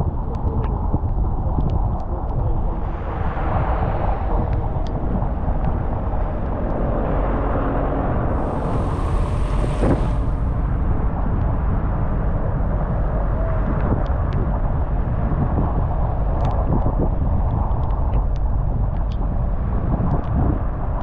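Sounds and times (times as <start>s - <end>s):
car road and engine rumble: 0.0s - 21.0s
tyre hiss on wet road: 8.4s - 10.6s.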